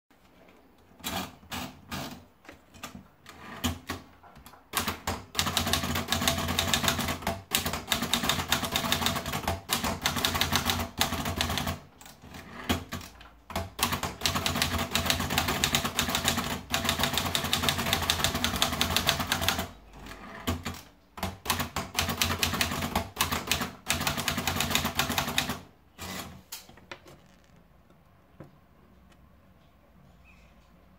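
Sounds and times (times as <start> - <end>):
fast typewriter typing: 4.7 - 26.4.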